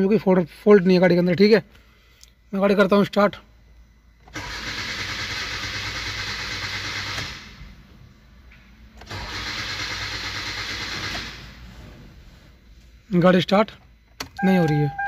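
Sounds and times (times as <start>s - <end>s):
starter cranking engine: 4.3s - 7.4s, 9.0s - 11.6s.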